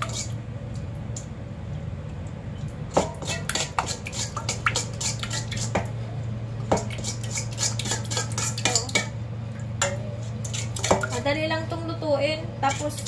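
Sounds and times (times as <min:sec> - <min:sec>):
spoon stirring marinade: 0:00.0 - 0:00.4, 0:02.9 - 0:05.9, 0:06.7 - 0:09.2, 0:09.8 - 0:11.3, 0:12.6 - 0:13.0.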